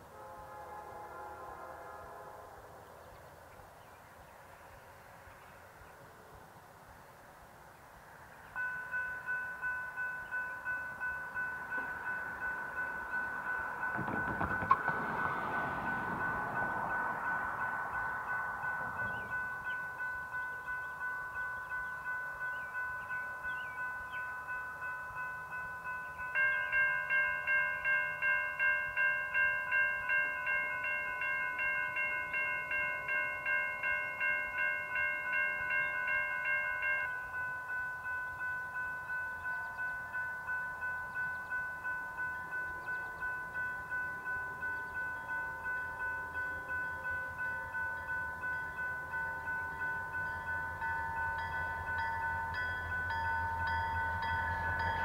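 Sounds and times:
railroad crossing bells ringing: 6.6 - 55.0
loud crossing bell: 8.2 - 55.0
diesel locomotive rumble: 9.9 - 24.1, 41.0 - 55.0.

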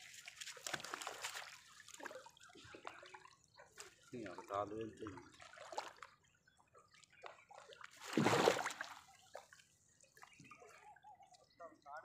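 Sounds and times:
water splash: 0.0 - 3.0, 7.9 - 9.1
wet net being hauled: 8.0 - 9.0.

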